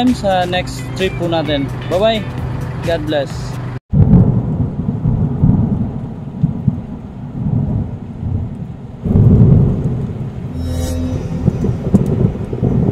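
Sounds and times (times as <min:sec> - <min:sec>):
thunder rumbling: 0:03.9 - 0:10.6, 0:11.2 - 0:12.9
rain: 0:04.0 - 0:10.5, 0:11.8 - 0:12.9.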